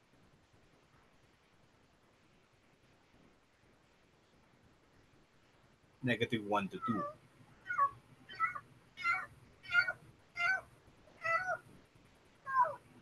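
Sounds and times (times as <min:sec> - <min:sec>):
cat meowing: 0:06.8 - 0:11.6, 0:12.4 - 0:12.9.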